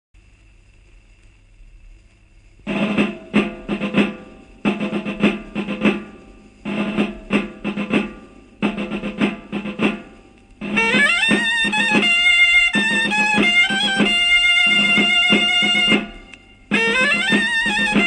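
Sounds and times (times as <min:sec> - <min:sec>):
faint record hiss and hum: 0:00.2 - 0:18.0
drum strokes and rolls: 0:02.0 - 0:18.0.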